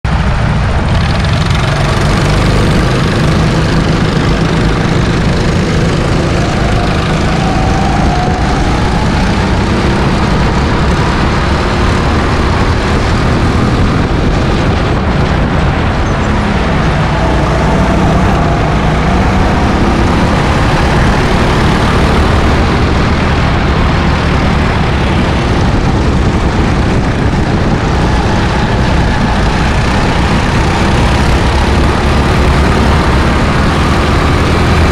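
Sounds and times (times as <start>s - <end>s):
go-kart engine running: 0.1s - 34.9s.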